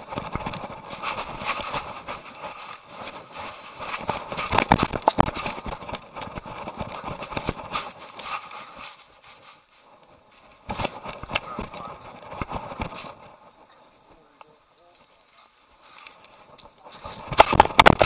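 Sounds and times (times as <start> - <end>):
camera rubbing against dog fur: 0.3 - 9.7.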